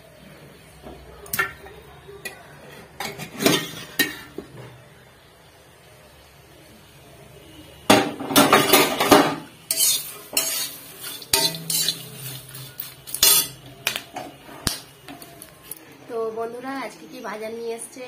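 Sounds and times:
metal spatula scraping a pan: 8.3 - 14.8.

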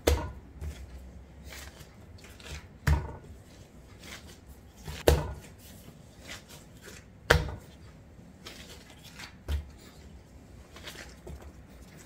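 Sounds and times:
dough thumping on mat: 0.0 - 3.4, 4.8 - 5.7, 6.4 - 7.9
dough rubbing and squishing: 0.0 - 12.0.

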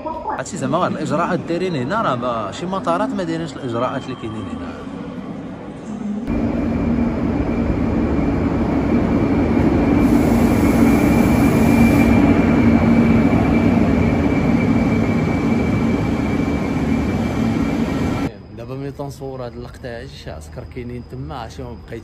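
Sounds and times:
train passing rumble: 5.1 - 22.0.

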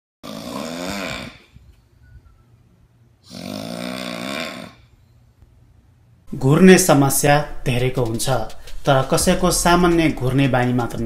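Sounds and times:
person snoring: 0.2 - 1.5, 3.2 - 4.9.

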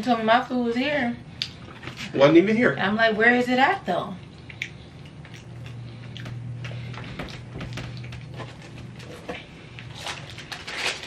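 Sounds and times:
low steady hum: 0.0 - 11.0
chewing and lip smacking: 4.2 - 8.4.

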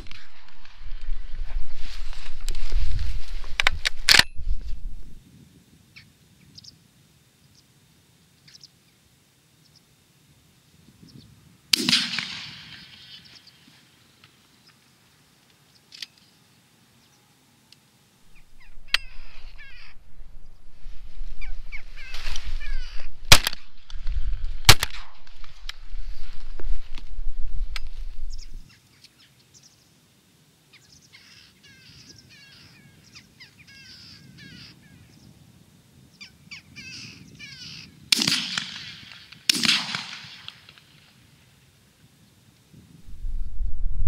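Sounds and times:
shotgun shots: 11.7 - 13.2, 23.3 - 23.7, 24.6 - 25.3, 38.1 - 40.8
crows calling: 18.3 - 20.1, 21.4 - 23.2, 31.1 - 35.1, 36.2 - 38.0
low rumble: 18.3 - 28.7, 43.0 - 44.0.

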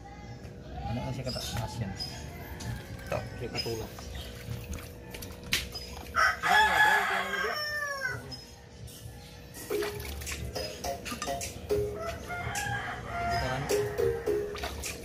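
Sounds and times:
water splashing in basin: 3.9 - 6.2, 9.7 - 10.6, 14.4 - 15.0
rooster crowing: 6.2 - 8.7, 12.0 - 14.5.

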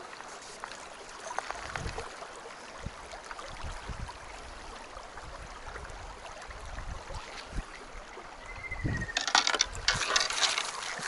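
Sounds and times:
river running over stones: 0.0 - 11.0
splashing in water: 9.2 - 11.0.

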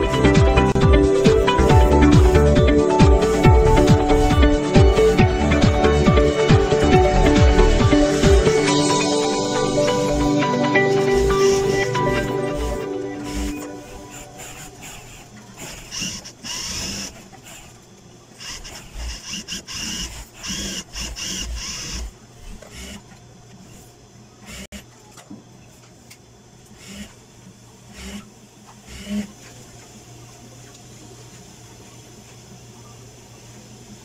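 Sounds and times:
motor hum: 0.0 - 34.0
sewing machine stitching: 1.2 - 2.6, 9.6 - 17.8, 18.4 - 23.1, 23.7 - 24.9, 26.8 - 27.2, 27.9 - 29.4.

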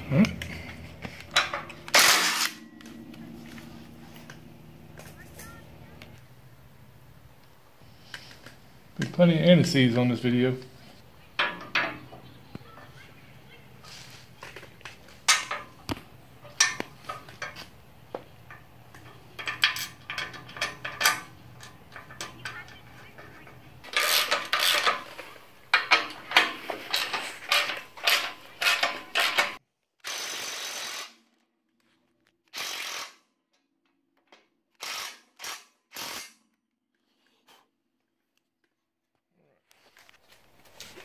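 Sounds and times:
steel parts clinking and clanking: 0.0 - 5.6, 11.3 - 12.2, 14.4 - 29.6.

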